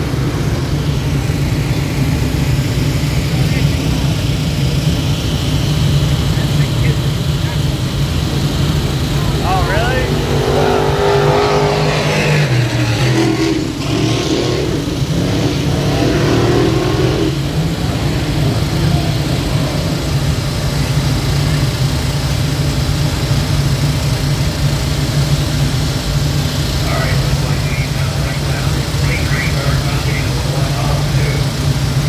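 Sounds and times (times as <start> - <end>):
race car engines droning: 0.0 - 32.0
race cars passing by: 5.8 - 21.8.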